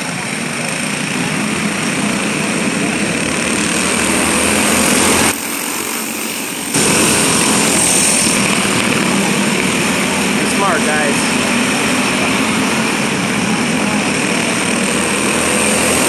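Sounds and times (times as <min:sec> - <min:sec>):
go-kart engines running: 0:00.0 - 0:16.0.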